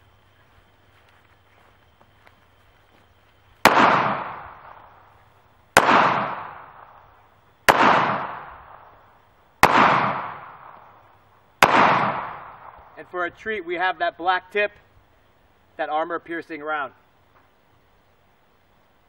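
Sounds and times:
pistol shots: 3.6 - 4.9, 5.8 - 7.0, 7.7 - 8.9, 9.6 - 10.9, 11.6 - 13.0.

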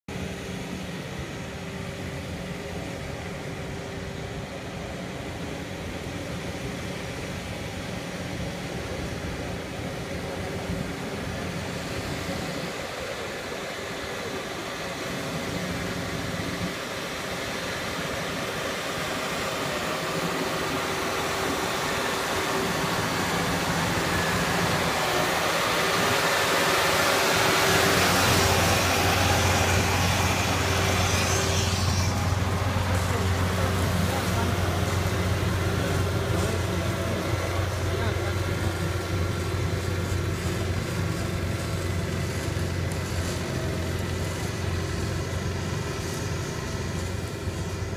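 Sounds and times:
tractor engine running: 0.1 - 47.9.

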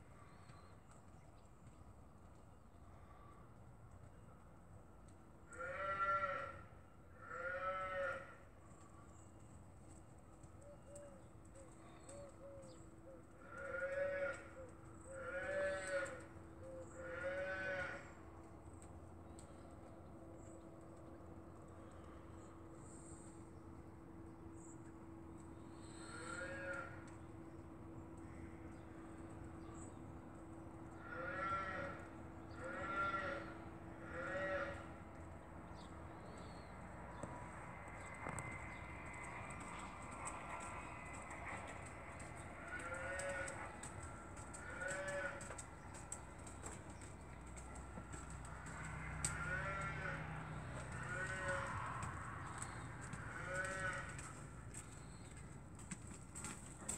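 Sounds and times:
farm animal calling: 10.5 - 18.3, 25.8 - 27.2, 30.8 - 35.0, 38.0 - 56.9.

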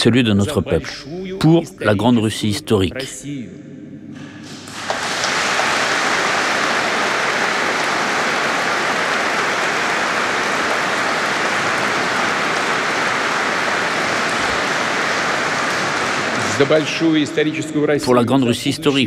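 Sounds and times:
audience applauding: 4.7 - 17.6.

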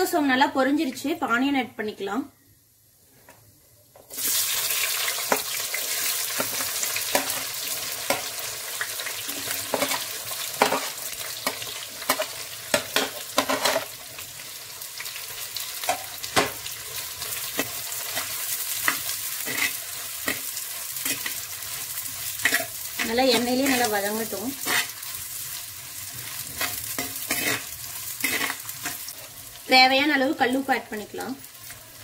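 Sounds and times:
onions sizzling in hot oil: 4.1 - 32.0
spoon scraping and clicking: 26.6 - 29.0.

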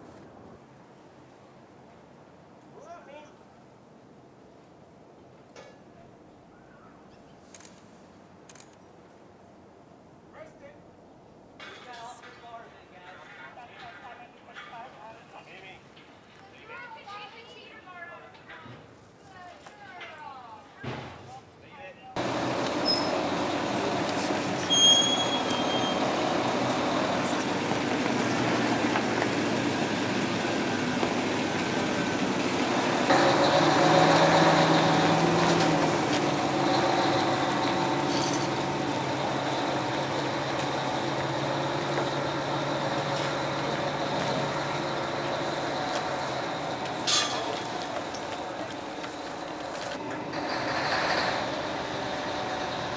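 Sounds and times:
crane diesel engine running: 22.2 - 52.9
short high squeal: 22.8 - 23.3, 24.6 - 26.1.

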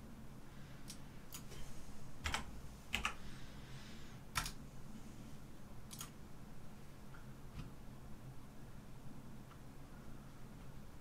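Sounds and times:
faint background hum: 0.0 - 11.0
computer keyboard key clicks: 4.4 - 4.6, 5.9 - 6.1.

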